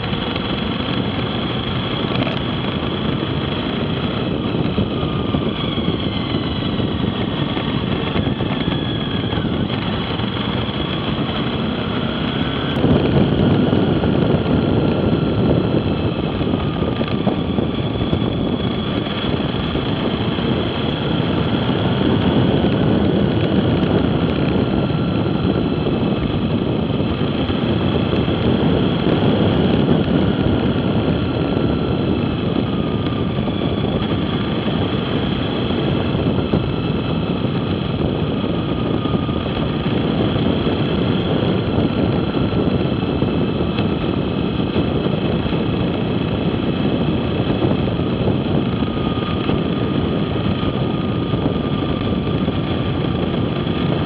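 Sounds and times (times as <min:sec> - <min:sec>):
motorcycle engine running: 0:00.0 - 0:54.0
wind noise: 0:00.0 - 0:54.0.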